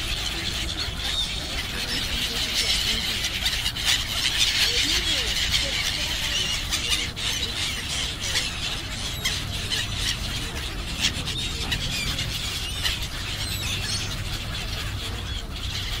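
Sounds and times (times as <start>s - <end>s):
flock of gulls calling: 0.0s - 16.0s
steady low rumble: 5.6s - 16.0s.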